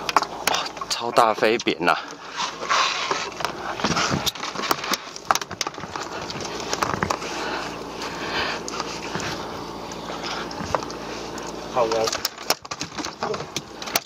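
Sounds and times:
wind: 0.0 - 14.0
sharp clicks and knocks: 10.6 - 14.0.

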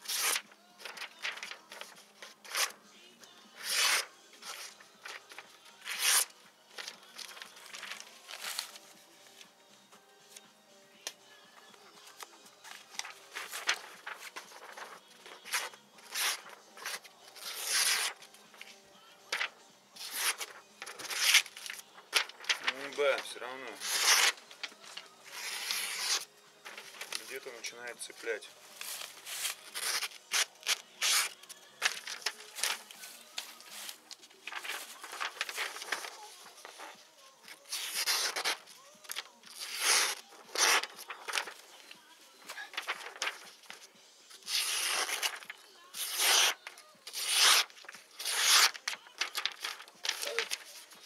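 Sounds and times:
knife slicing paper: 0.0 - 2.8, 3.6 - 8.8, 13.0 - 18.3, 19.4 - 23.0, 23.8 - 27.3, 28.8 - 36.8, 37.7 - 41.6, 44.4 - 50.9.

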